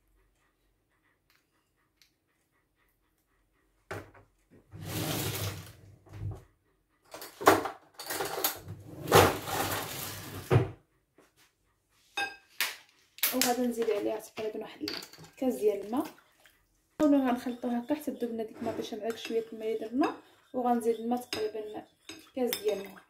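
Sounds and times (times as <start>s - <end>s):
drawer sliding open and shut: 4.7s - 6.2s, 7.3s - 10.8s
utensils clattering: 7.1s - 10.5s.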